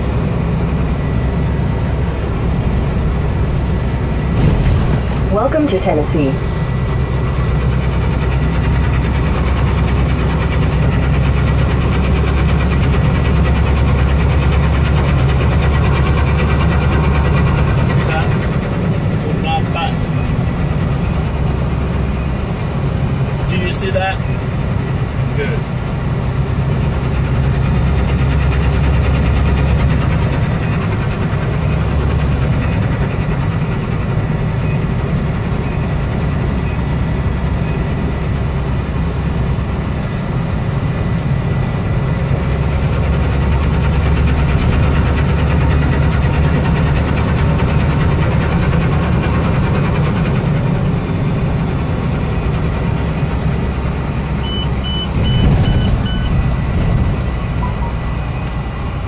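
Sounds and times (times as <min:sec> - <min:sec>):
truck engine and road drone: 0:00.0 - 0:59.0
quick electronic beeps: 0:54.4 - 0:56.4, 0:57.6 - 0:58.5.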